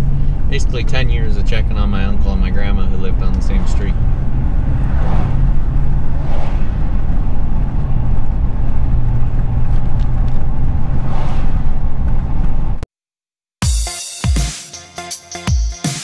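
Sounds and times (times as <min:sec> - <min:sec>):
truck engine and road rumble: 0:00.0 - 0:12.8
electronic music: 0:13.6 - 0:16.0.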